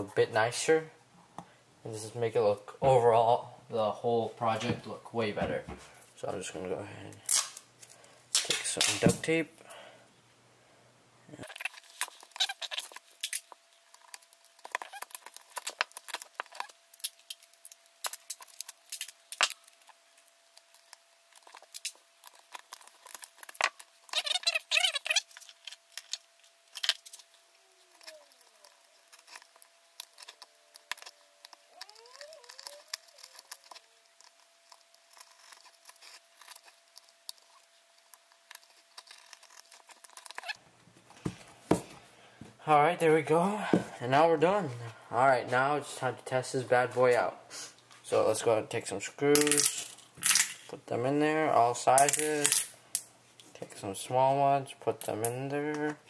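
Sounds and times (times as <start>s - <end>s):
duct tape crackling and peeling: 11.4s - 40.6s
tape ripping: 11.5s - 40.6s.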